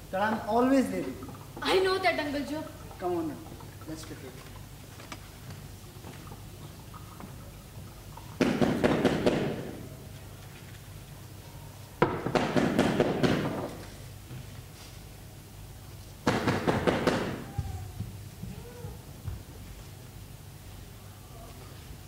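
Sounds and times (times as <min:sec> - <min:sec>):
banging and crackling bursts: 0:08.4 - 0:09.9, 0:12.0 - 0:13.9, 0:16.2 - 0:17.5.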